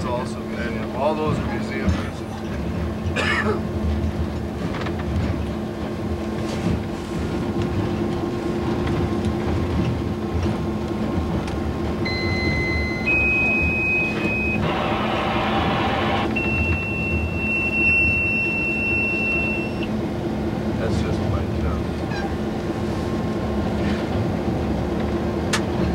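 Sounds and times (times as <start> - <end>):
diesel locomotive running: 0.0 - 25.9
rough noisy burst: 14.6 - 16.4.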